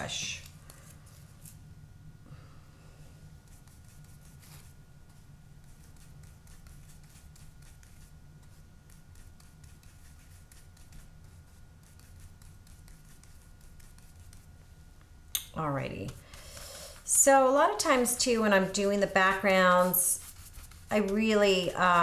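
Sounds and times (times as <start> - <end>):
paintbrush scrubbing on palette: 3.4 - 14.6, 15.9 - 22.0.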